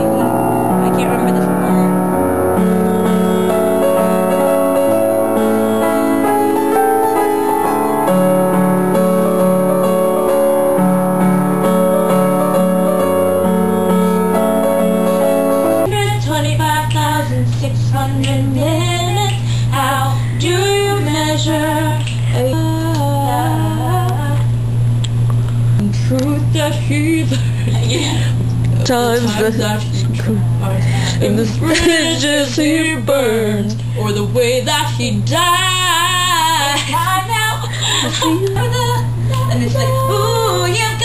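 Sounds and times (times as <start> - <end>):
keyboard piano chords: 0.0 - 33.7
steady low hum: 0.0 - 41.0
girl singing with vibrato: 15.8 - 24.5, 25.8 - 41.0.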